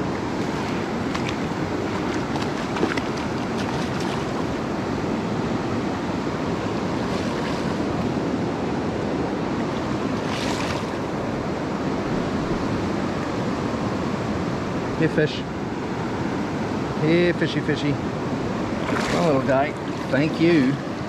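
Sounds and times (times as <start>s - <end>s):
river water rushing: 0.0s - 17.2s, 18.0s - 21.0s.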